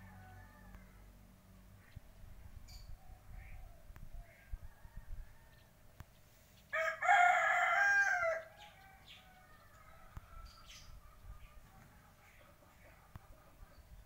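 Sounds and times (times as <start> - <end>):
rooster crowing: 0.0 - 1.1, 6.7 - 10.8.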